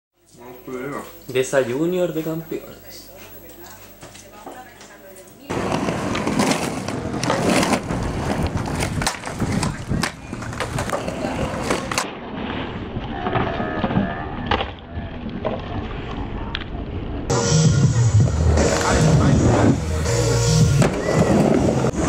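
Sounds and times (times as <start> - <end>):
skateboard clacks: 5.5 - 12.1
skateboard scraping concrete ledge: 5.5 - 13.9
skateboard wheels rolling: 5.5 - 17.3, 18.0 - 22.0.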